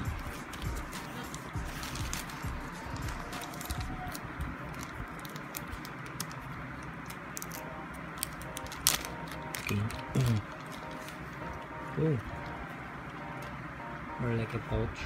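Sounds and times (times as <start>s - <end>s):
plastic bag crinkling: 0.2s - 11.4s.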